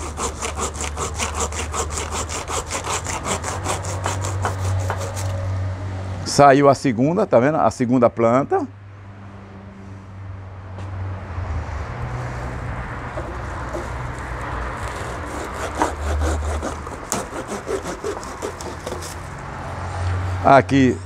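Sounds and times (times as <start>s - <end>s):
pruning saw rasping through branch: 0.0s - 5.4s, 13.2s - 19.4s.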